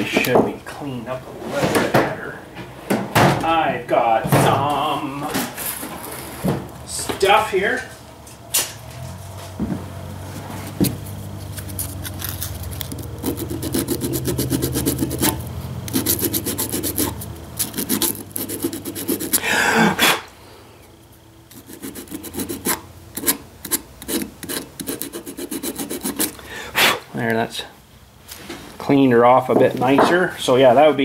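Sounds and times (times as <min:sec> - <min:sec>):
hand scrubbing strokes: 0:10.4 - 0:20.1, 0:21.5 - 0:26.4.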